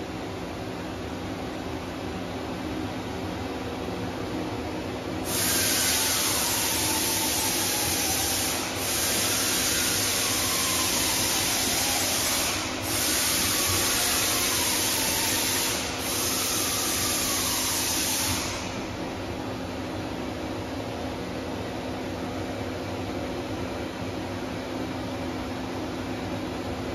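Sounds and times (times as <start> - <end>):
coolant jet hissing: 5.2 - 19.2.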